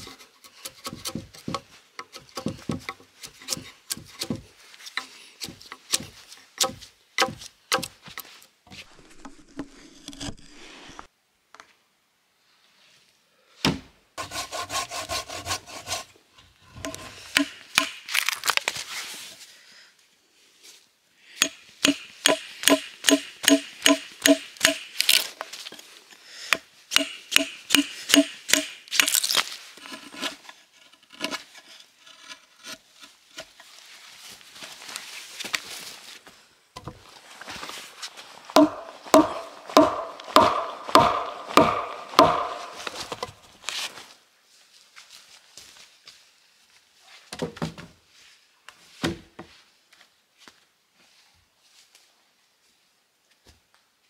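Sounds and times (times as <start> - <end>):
tool striking wood: 0.8 - 7.9, 16.8 - 18.0, 21.4 - 25.1, 26.5 - 29.2, 38.6 - 43.3.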